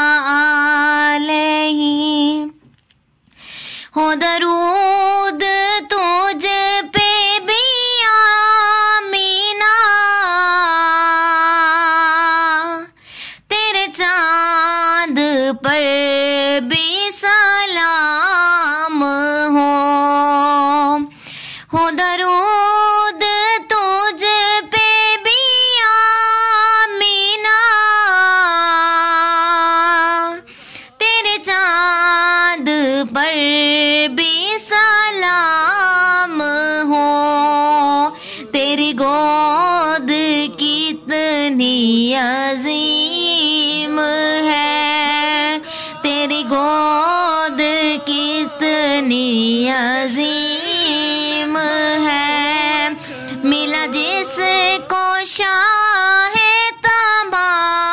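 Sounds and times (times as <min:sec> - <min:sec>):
high voice singing: 0:04.0 - 0:57.9.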